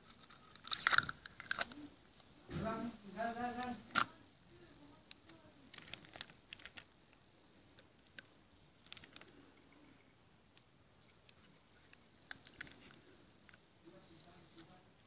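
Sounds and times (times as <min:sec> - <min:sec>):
tape crinkling: 0:00.0 - 0:01.8, 0:05.1 - 0:07.2, 0:07.8 - 0:09.4, 0:11.3 - 0:13.6.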